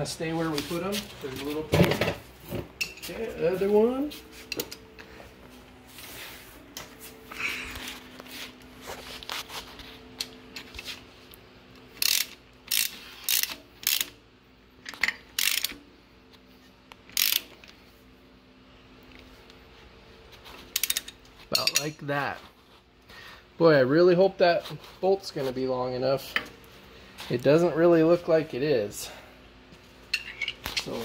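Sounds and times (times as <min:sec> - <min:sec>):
faint steady hum: 0:00.0 - 0:31.0
socket ratchet clicking: 0:12.0 - 0:14.2, 0:14.9 - 0:15.8, 0:17.1 - 0:17.5.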